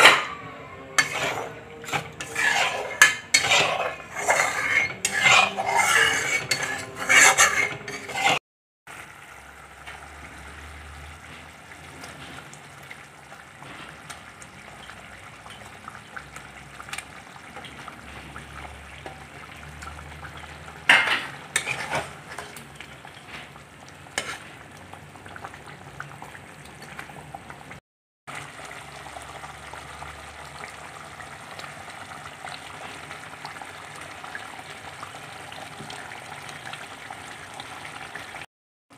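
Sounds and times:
spatula scraping in a wok: 0:00.0 - 0:08.4, 0:19.0 - 0:24.6
gravy simmering bubbling: 0:00.0 - 0:38.5.

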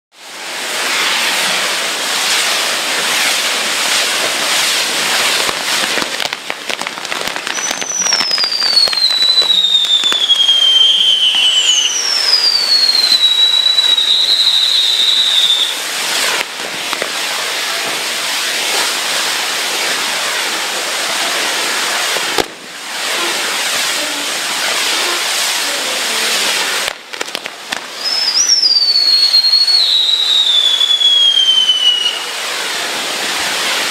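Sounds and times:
descending firework whistles: 0:00.2 - 0:33.9
fireworks crackling: 0:00.2 - 0:33.9.

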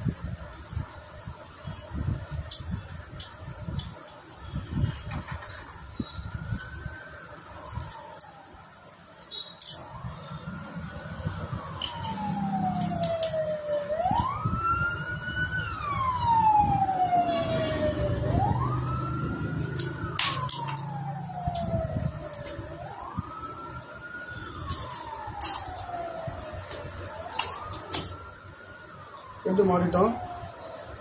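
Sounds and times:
siren wailing: 0:04.4 - 0:31.0
metallic clicks of engine parts: 0:09.5 - 0:09.9.

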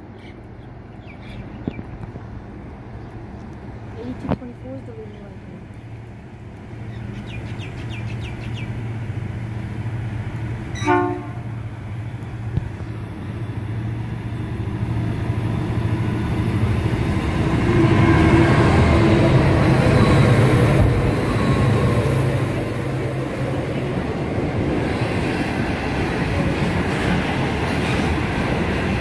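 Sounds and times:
diesel locomotive engines droning: 0:00.0 - 0:29.0
short train horn toot: 0:10.7 - 0:11.6.

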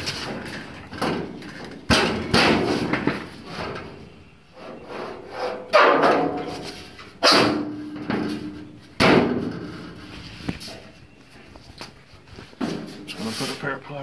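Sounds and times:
sheet metal thumps ringing: 0:00.9 - 0:04.0, 0:05.7 - 0:10.0.

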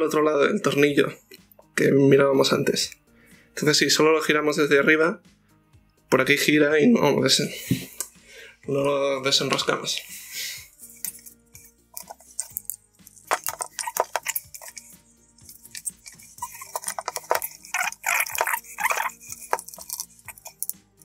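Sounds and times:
faint background music: 0:00.0 - 0:21.0
tools clicking on plastic and metal: 0:12.0 - 0:20.8.

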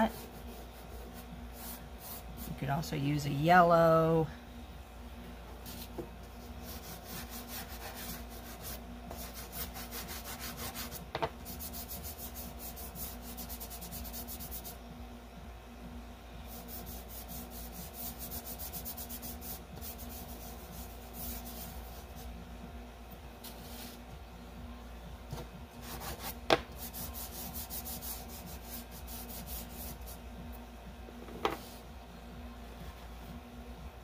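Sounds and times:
fingers rubbing pastel on paper: 0:06.6 - 0:14.8, 0:16.5 - 0:22.3, 0:25.8 - 0:30.2.

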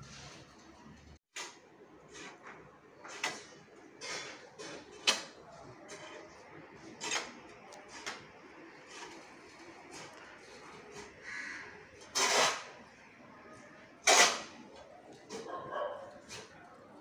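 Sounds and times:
hoe scraping and chopping soil: 0:12.0 - 0:12.8, 0:14.0 - 0:15.5.

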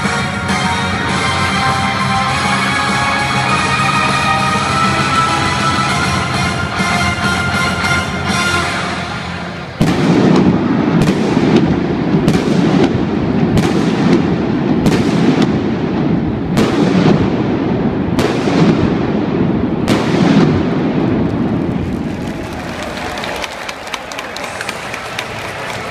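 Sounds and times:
music: 0:00.0 - 0:10.8
fireworks bangs: 0:00.0 - 0:23.5
echoing crowd din: 0:00.0 - 0:25.9.

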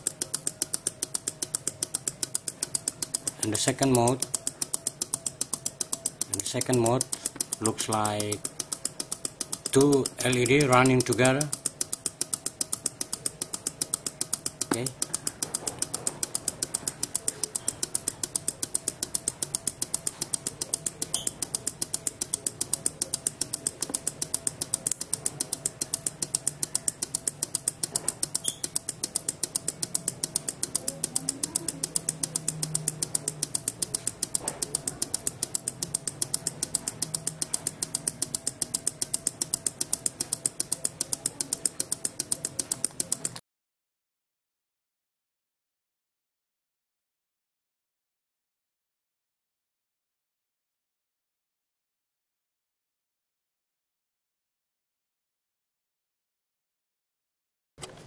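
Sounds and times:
relays clicking: 0:00.0 - 0:43.4.

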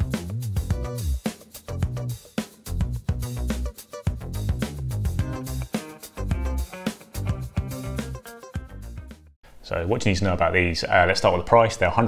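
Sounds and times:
upbeat instrumental music: 0:00.0 - 0:09.4.

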